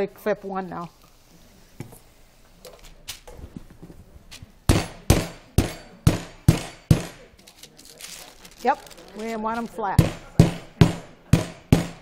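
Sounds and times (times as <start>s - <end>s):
rubber mallet pounding on table: 4.7s - 7.2s, 10.0s - 12.0s.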